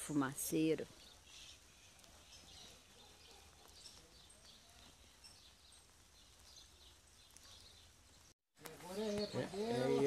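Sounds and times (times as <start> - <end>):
faint bird chirps: 0.9 - 8.3.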